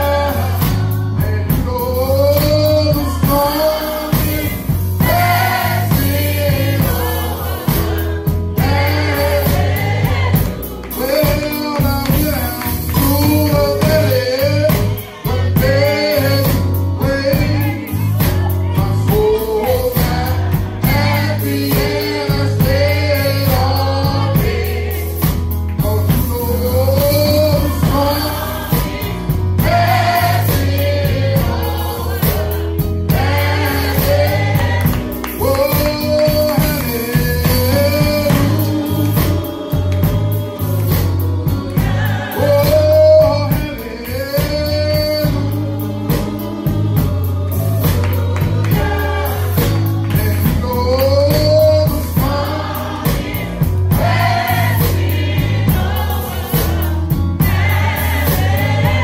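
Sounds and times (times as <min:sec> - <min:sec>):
man singing into microphone: 0:00.0 - 0:09.9, 0:10.8 - 0:24.8, 0:25.8 - 0:53.6
bass accompaniment: 0:00.0 - 0:59.0
congregation singing along: 0:00.0 - 0:59.0
hands clapping: 0:10.8 - 0:11.1, 0:11.7 - 0:13.6, 0:34.8 - 0:37.2, 0:47.9 - 0:48.9, 0:49.6 - 0:51.1.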